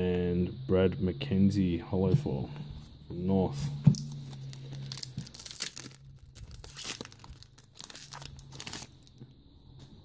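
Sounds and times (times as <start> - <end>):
foil wrapper tearing and crinkling: 4.0 - 9.2.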